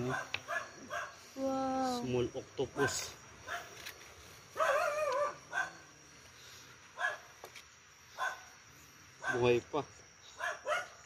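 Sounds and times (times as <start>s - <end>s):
distant dog barking: 0.0s - 1.2s, 2.8s - 3.8s, 4.5s - 5.9s, 7.0s - 7.4s, 8.1s - 8.6s, 9.2s - 9.6s, 10.3s - 11.0s
dog yelping: 0.0s - 1.2s, 4.6s - 5.8s.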